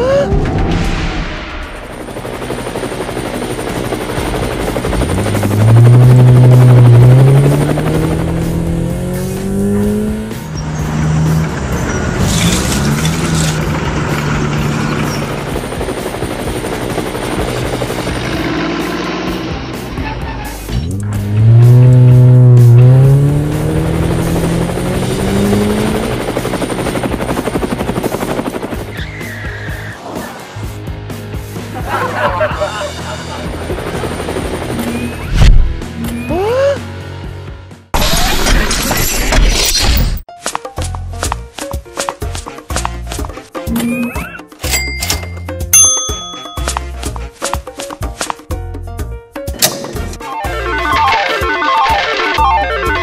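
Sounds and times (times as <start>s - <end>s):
helicopter rotor chopping: 0.6s - 20.0s, 21.0s - 29.9s, 31.8s - 36.1s
vehicle engine rumbling and revving: 4.4s - 15.9s, 17.3s - 27.8s
motor whine rising in pitch: 4.9s - 11.5s, 20.9s - 26.3s.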